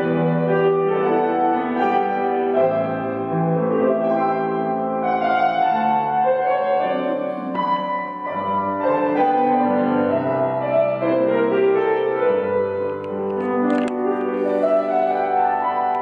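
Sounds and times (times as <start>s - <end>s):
grand piano classical music: 0.0s - 16.0s.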